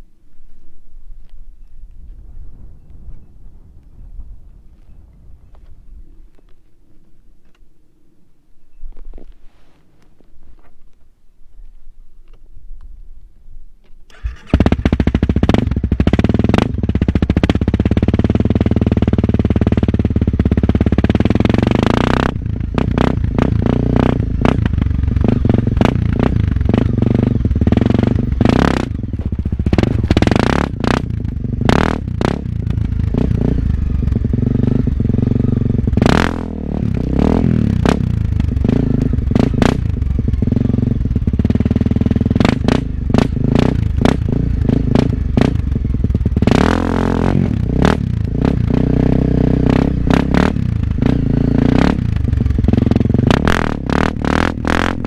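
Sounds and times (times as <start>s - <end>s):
motorcycle engine revving: 14.1s - 55.0s.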